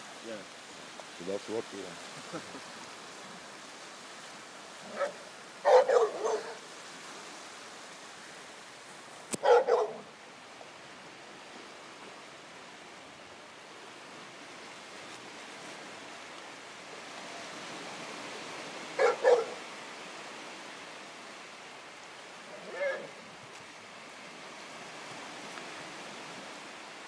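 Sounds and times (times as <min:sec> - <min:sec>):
steady background hiss: 0:00.0 - 0:27.0
dog barking: 0:04.9 - 0:06.7, 0:09.4 - 0:10.1, 0:19.0 - 0:19.6.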